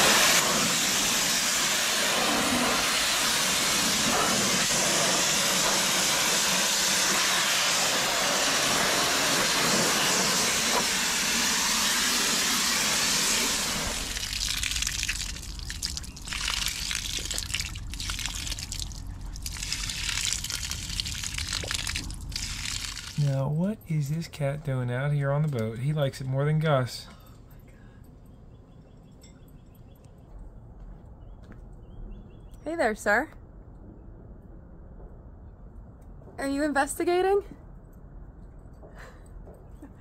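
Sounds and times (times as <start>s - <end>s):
water spraying onto boat: 0.0s - 23.3s.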